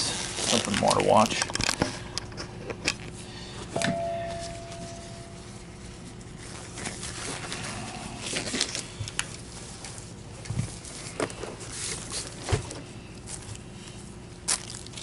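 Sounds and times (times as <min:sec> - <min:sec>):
short ringing tone: 0:03.8 - 0:05.8.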